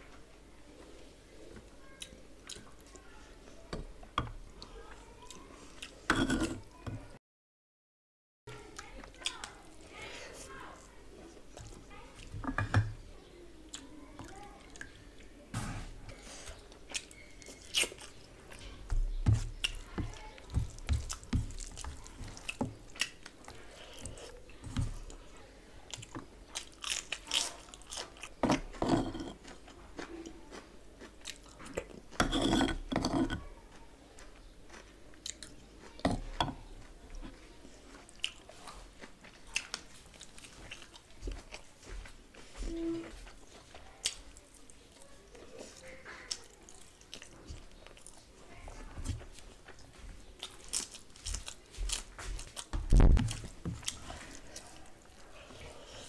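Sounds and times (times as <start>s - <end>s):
person chewing food: 4.2s - 6.7s, 16.1s - 25.3s, 25.9s - 56.0s.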